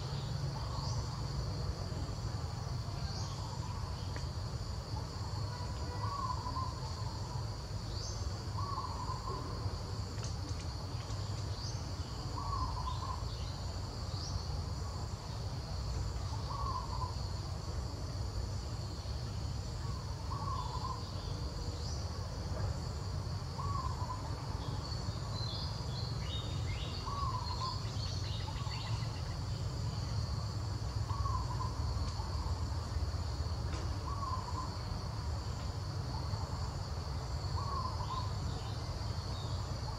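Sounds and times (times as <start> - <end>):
high insect drone: 0.0 - 39.9.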